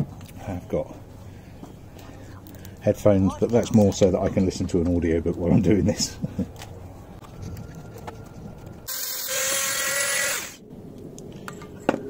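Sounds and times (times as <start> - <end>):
rotary tool grinding metal: 8.9 - 10.6.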